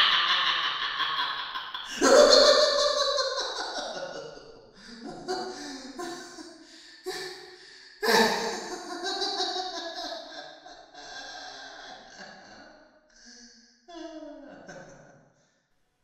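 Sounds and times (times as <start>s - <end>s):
creepy clown laughter: 0.0s - 7.4s, 8.0s - 12.6s
soft chuckles: 1.2s - 6.5s.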